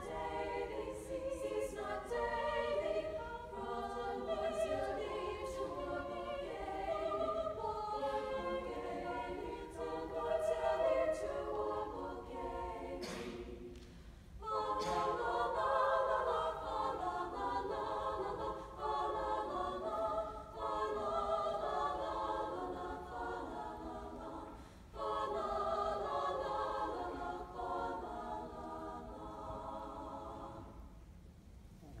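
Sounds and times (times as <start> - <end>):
women's choir singing: 0.0 - 31.0.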